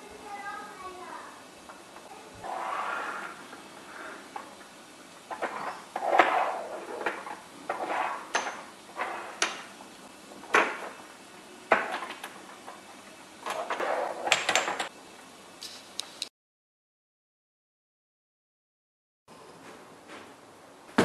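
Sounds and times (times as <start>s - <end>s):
jars scraping along countertop: 2.4s - 4.1s, 5.3s - 9.5s.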